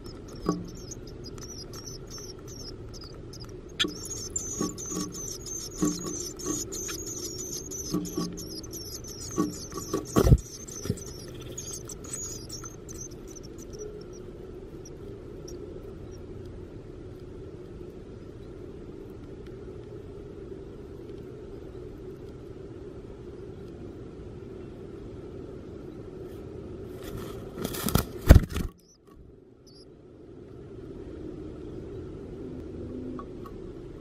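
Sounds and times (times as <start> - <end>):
nestlings chirping: 0.0 - 16.4, 28.5 - 29.8
low hum: 0.0 - 26.9
knocks inside wooden nest box: 3.8 - 12.1.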